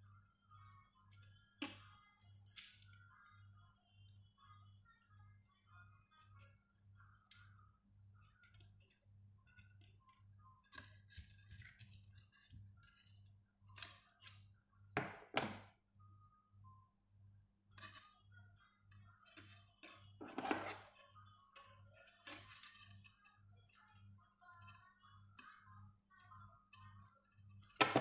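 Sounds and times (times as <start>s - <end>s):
metal wire clicking and scraping: 1.1s - 3.0s, 6.1s - 7.6s, 8.2s - 14.4s, 17.7s - 18.1s, 19.2s - 21.0s, 21.6s - 24.0s.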